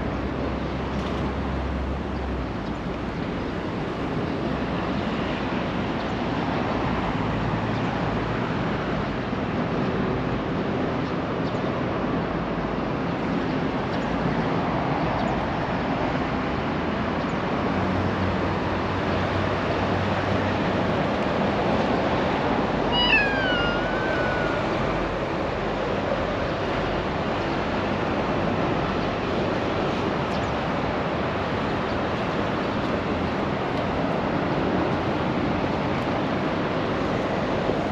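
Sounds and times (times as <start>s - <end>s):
outdoor background noise: 0.0s - 37.9s
cat meowing: 22.9s - 25.3s.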